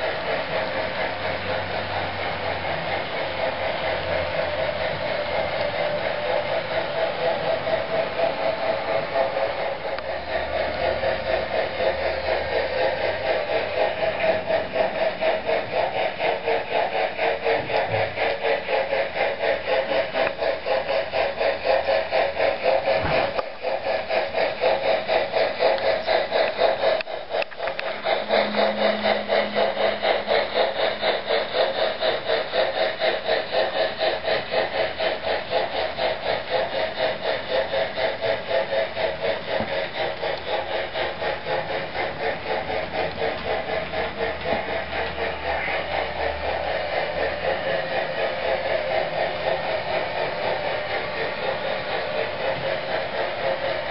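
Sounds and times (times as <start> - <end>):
steam chuffing from speaker: 0.0 - 53.9.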